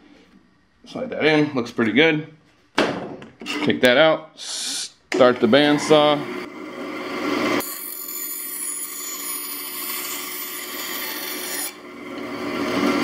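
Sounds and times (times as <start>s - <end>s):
band saw running: 5.3s - 13.0s
saw blade cutting wood: 7.6s - 13.0s.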